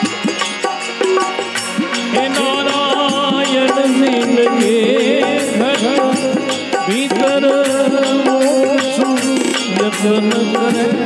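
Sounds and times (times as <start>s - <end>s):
gliding melody instrument: 0.0s - 7.0s
steady drum beat: 0.0s - 11.0s.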